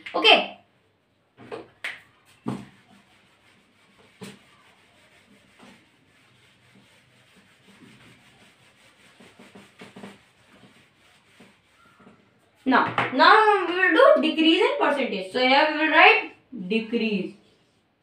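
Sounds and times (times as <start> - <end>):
eraser scrubbing whiteboard: 2.2 - 13.7.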